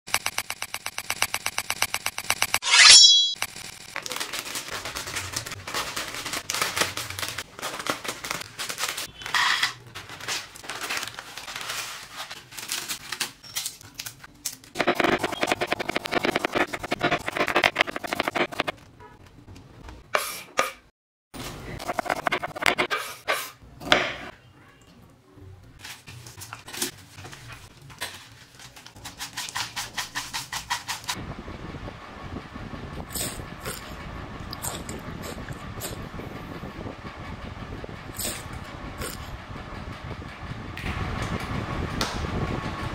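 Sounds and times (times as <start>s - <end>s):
scattered clicks: 0.1s - 2.6s
plastic packets crinkling: 4.0s - 14.8s.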